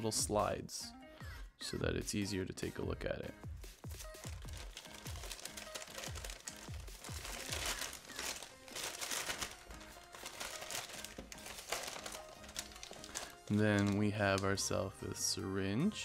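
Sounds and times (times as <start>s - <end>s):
electronic music with kick drums: 3.0s - 4.7s
packaging crinkling: 3.9s - 14.7s.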